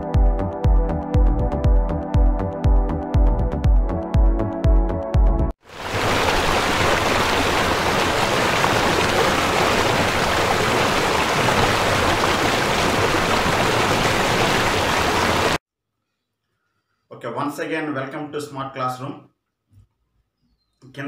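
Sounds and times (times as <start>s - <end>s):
river rapids rushing: 5.7s - 15.6s.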